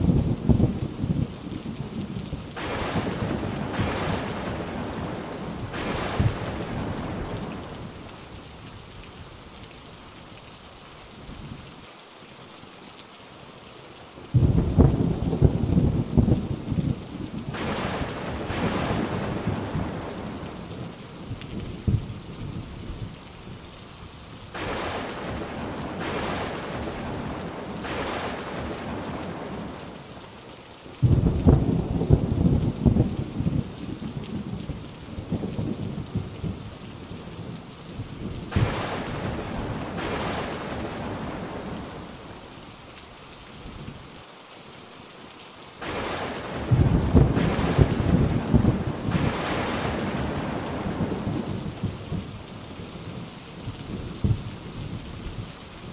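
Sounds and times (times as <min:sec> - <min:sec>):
rolling thunder: 0:00.0 - 0:08.0, 0:14.4 - 0:20.5, 0:31.0 - 0:33.7, 0:38.2 - 0:42.1, 0:45.8 - 0:52.3
heavy rain falling: 0:00.0 - 0:55.9
loud thunderclap: 0:02.6 - 0:07.7, 0:14.4 - 0:16.4, 0:17.5 - 0:20.4, 0:24.6 - 0:29.7, 0:31.0 - 0:33.6, 0:38.4 - 0:41.8, 0:45.8 - 0:52.3.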